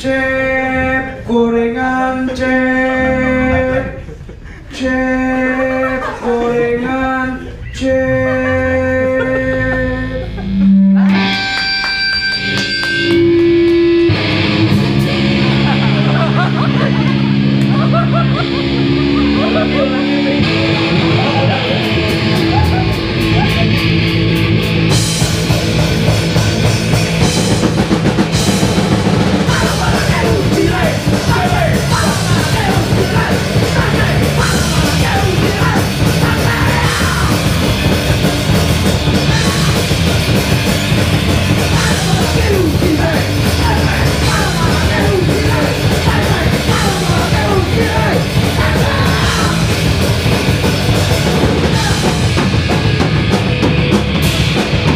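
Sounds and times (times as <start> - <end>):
bass: 0.0 - 54.9
distorted electric guitars: 7.5 - 54.9
drum kit: 10.2 - 54.9
shouted vocals: 18.7 - 23.9, 29.4 - 37.9, 39.2 - 40.3, 41.5 - 50.0, 50.9 - 52.4.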